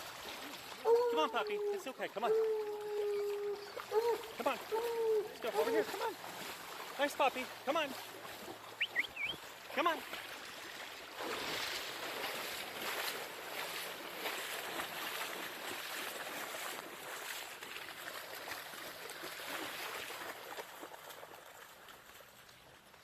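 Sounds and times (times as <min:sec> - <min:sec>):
splashing in shallow water: 0:00.0 - 0:23.0.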